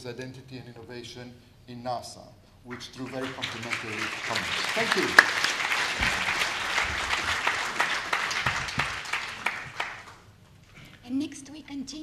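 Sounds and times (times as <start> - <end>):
audience applauding: 2.7 - 10.3.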